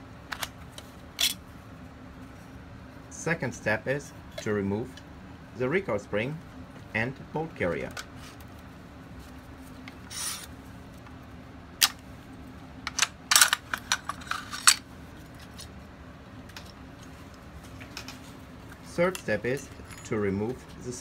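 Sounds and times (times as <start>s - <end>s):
metal sliding rasps: 10.1s - 10.5s.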